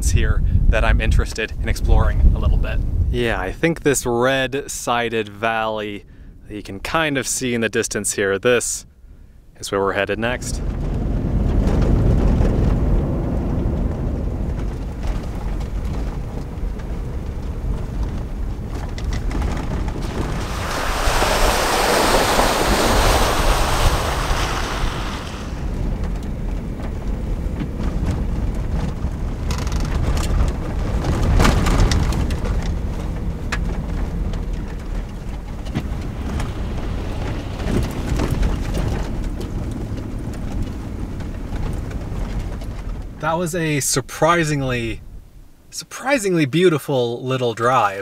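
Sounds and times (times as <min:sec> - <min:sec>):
engine and tyres rumbling: 0:00.0 - 0:03.6, 0:10.2 - 0:45.8
loud rushing noise: 0:20.0 - 0:25.8.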